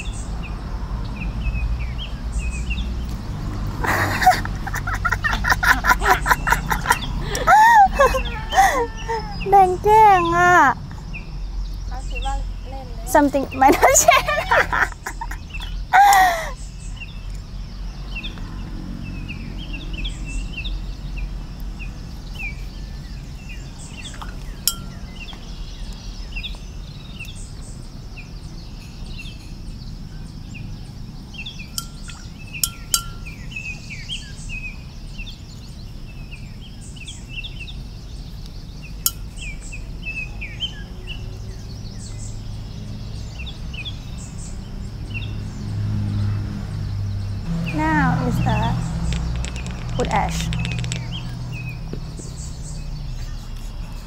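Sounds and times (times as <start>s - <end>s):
small birds chirping: 0.0s - 54.0s
sharp clicks: 49.0s - 51.4s.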